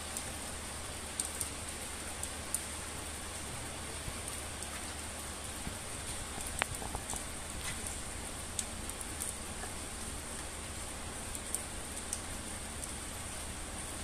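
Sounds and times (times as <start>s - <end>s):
rain on concrete: 0.0s - 14.0s.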